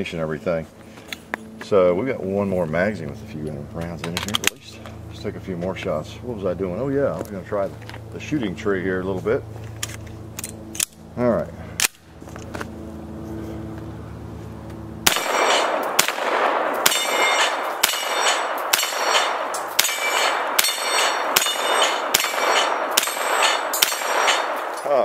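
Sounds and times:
pistol gunshots: 15.0 - 24.8
steel targets clanging: 15.1 - 16.1, 16.8 - 24.9.

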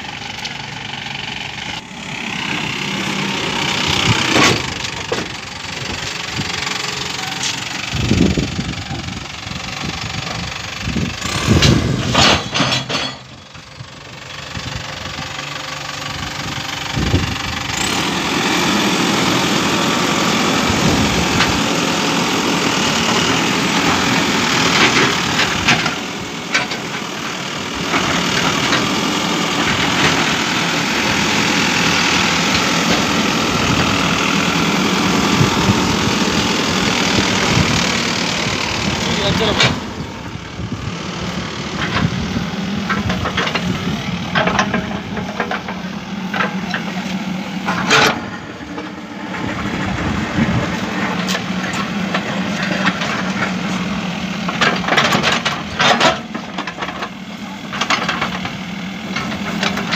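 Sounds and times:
diesel engine running: 0.0 - 59.9
engine knocks: 0.0 - 59.9.

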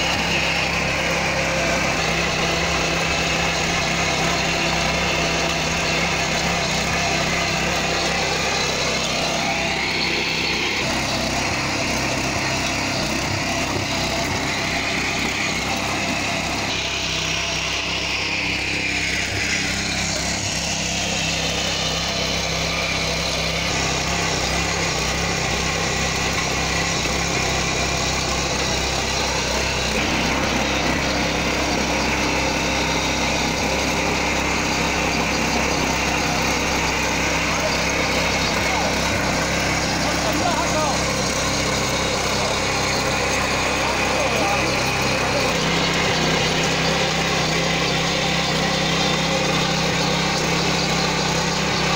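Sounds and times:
power tiller engine running: 0.0 - 51.9.

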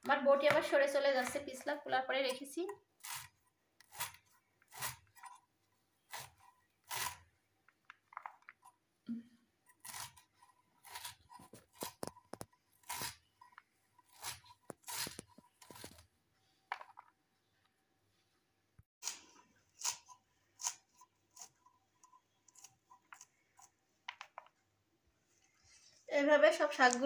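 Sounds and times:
knife slicing leaves: 3.0 - 5.3, 6.1 - 7.2, 9.8 - 12.1, 12.8 - 13.2, 14.1 - 16.0.

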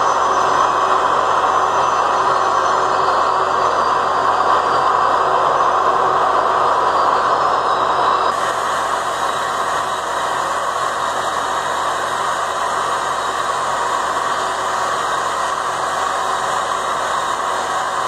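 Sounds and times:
industrial machinery noise: 0.0 - 18.0.

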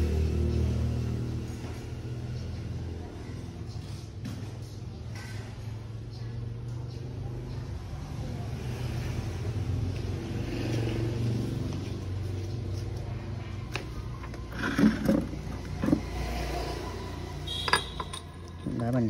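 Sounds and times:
vehicle engine humming: 6.2 - 19.0.

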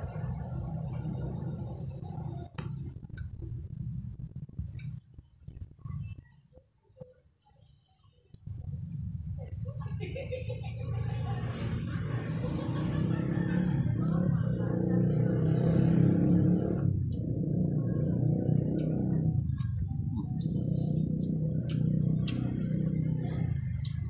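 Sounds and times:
steady low hum: 0.0 - 24.0
chewing with lip smacks: 21.6 - 22.6.

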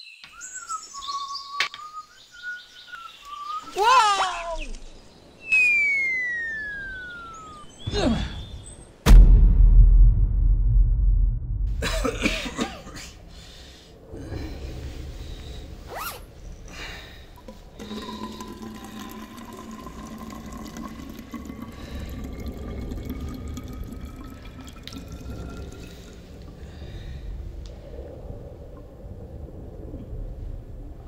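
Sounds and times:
low rumble: 9.1 - 17.7, 21.9 - 31.0
liquid pouring into a bottle: 17.4 - 26.7.

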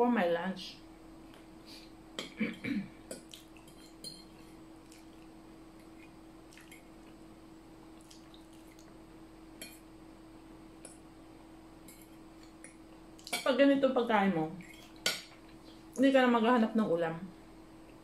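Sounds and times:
faint steady hum: 0.0 - 18.0
wet chewing: 3.2 - 7.2, 7.9 - 9.0.

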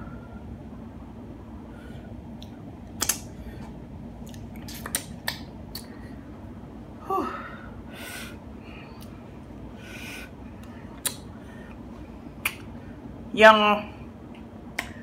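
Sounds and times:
wet lip smacks: 2.4 - 3.3, 4.2 - 5.9, 11.0 - 11.2.

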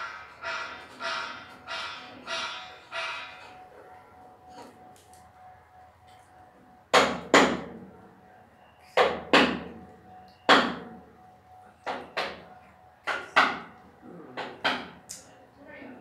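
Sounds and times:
loud sharp knocks: 0.0 - 3.5, 6.9 - 7.7, 9.0 - 9.7, 10.5 - 10.8, 13.0 - 13.7, 14.4 - 15.0.

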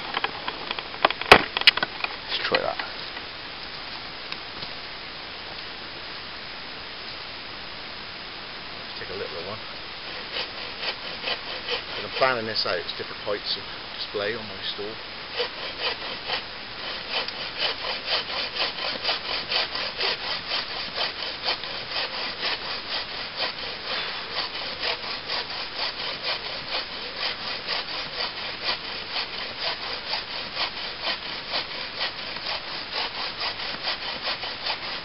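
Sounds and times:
hand saw cutting a log: 9.0 - 13.6, 14.2 - 35.0.

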